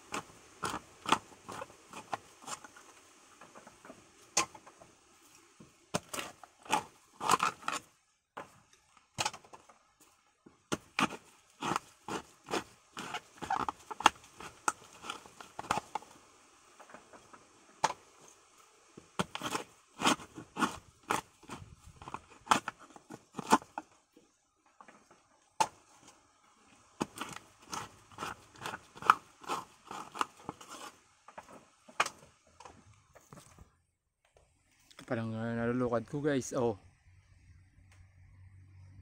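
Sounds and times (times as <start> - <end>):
hands tearing coconut husk: 6.0 - 7.9, 27.0 - 31.0.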